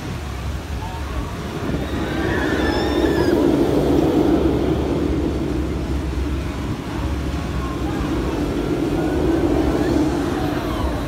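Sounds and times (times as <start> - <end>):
roller coaster rumbling on track: 0.0 - 11.0
riders screaming: 1.6 - 4.8.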